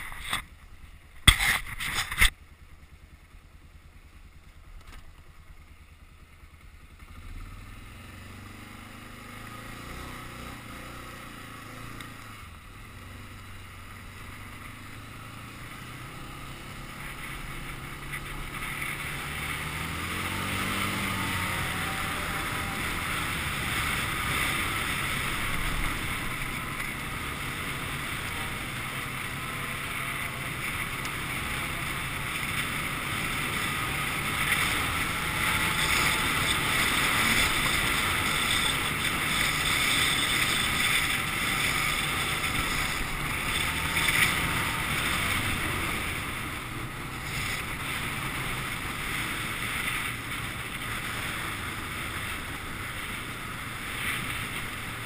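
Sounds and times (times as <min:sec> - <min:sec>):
quad engine running: 0:00.0 - 0:55.0
tyres on gravel: 0:14.2 - 0:55.0.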